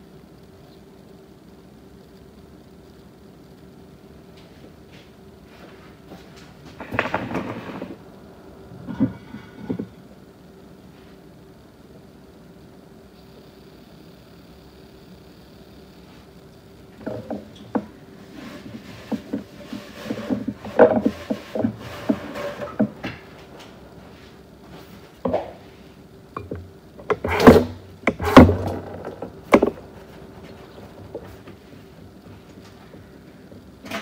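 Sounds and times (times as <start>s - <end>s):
faint steady hum: 0.0s - 34.0s
objects clattering: 6.2s - 8.0s, 8.8s - 10.0s, 17.0s - 25.8s, 26.4s - 33.1s.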